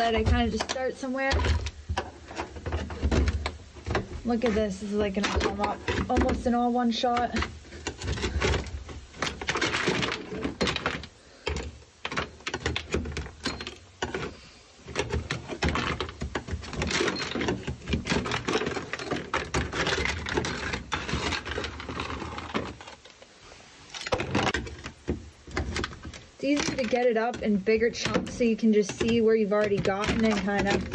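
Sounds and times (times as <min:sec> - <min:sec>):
hand scraper scraping material off metal: 0:24.1 - 0:30.9.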